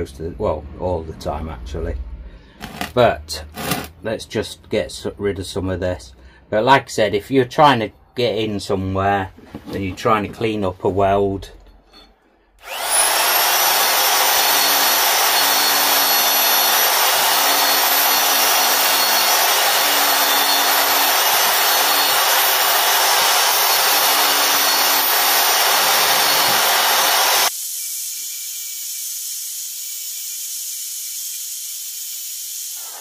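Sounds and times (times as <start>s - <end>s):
belt sander grinding metal: 2.6s - 4.0s, 11.6s - 33.0s.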